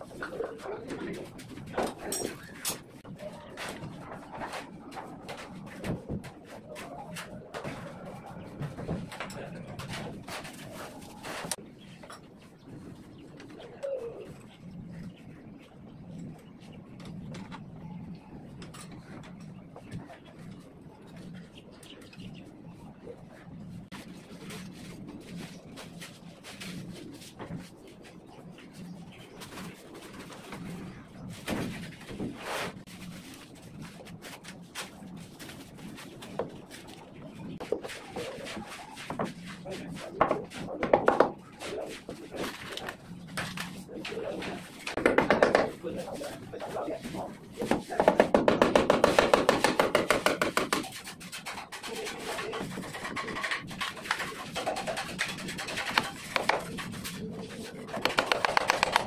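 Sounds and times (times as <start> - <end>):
hammer knocking on wood: 40.2 - 41.4, 45.0 - 45.8, 47.6 - 50.9.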